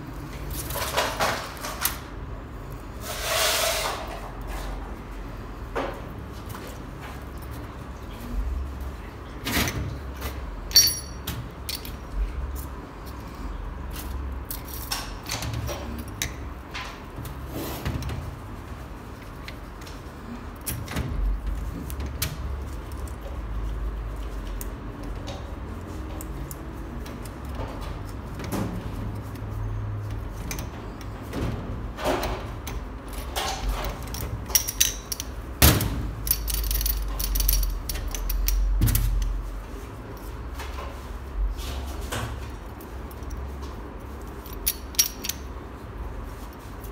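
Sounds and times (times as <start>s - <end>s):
small steel parts clinking: 10.7s - 12.0s, 33.1s - 35.4s, 36.2s - 38.7s, 44.4s - 45.5s.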